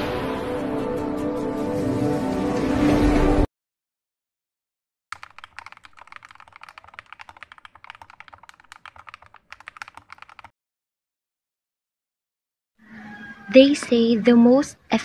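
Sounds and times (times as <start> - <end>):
rapid keyboard typing: 5.1 - 10.5.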